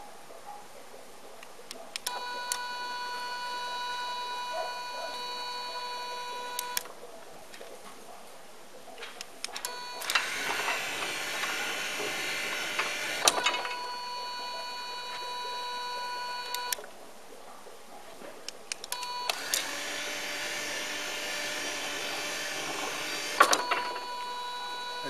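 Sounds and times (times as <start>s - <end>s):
switching clicks: 5.1s - 6.9s
gate motor rattling: 9.6s - 16.8s, 18.9s - 25.0s.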